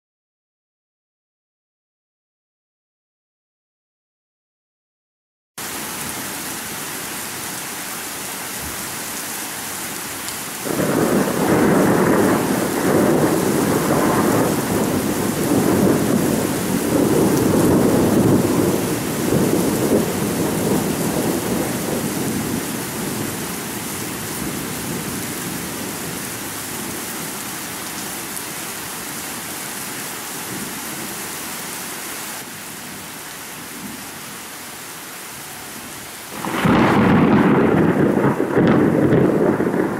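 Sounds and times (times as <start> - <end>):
steady rain: 5.6 - 39.9
thunder rolling: 10.6 - 23.4, 36.4 - 39.9.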